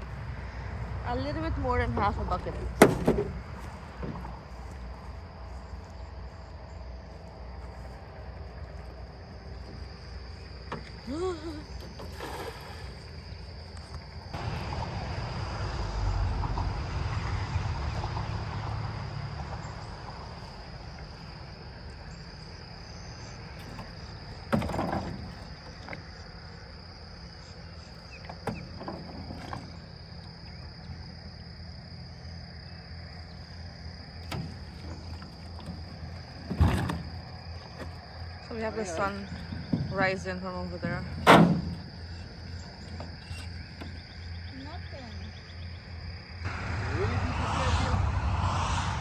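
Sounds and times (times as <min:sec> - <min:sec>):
insects chirping: 0:00.0 - 0:49.0
water splashes: 0:11.8 - 0:13.8
low rumble: 0:13.4 - 0:21.8, 0:46.2 - 0:49.0.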